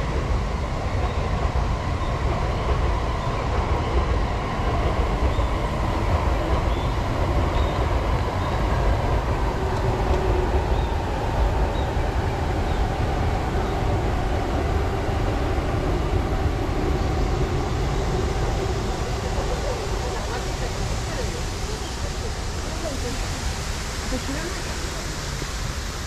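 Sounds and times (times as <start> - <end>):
passing train rumble: 0.0 - 26.0.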